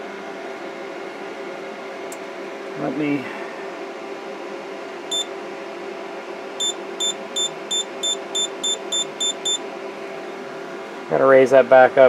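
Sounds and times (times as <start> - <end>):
steady low hum: 0.0 - 12.0
touchscreen beeps: 6.6 - 9.6.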